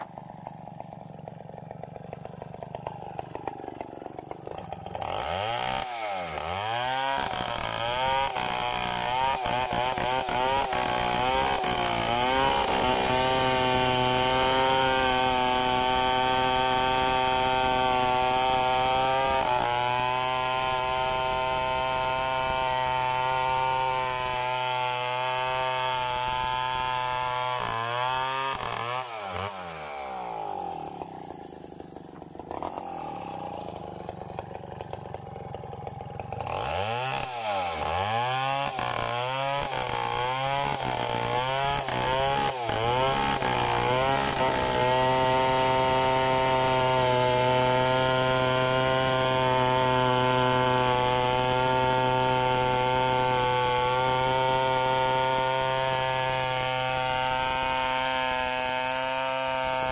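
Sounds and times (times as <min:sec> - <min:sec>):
chainsaw revving and cutting log: 0:00.0 - 0:59.9.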